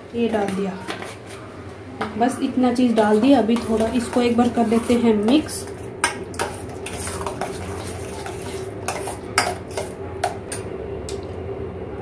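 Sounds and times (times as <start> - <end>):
steady low hum: 0.0 - 12.0
yogurt being mixed in saucepan: 2.8 - 10.6
metal spoon clinking on pan: 8.2 - 10.6.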